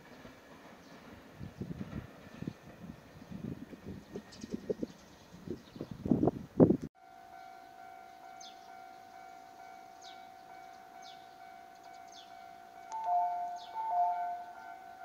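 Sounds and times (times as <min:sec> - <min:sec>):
alternating two-note chime: 0:07.0 - 0:15.0.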